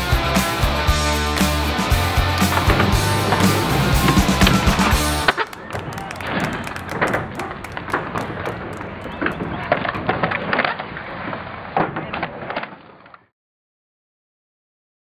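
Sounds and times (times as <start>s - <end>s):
skateboards rolling on concrete: 0.0s - 13.3s
skateboard clacks: 1.2s - 13.2s.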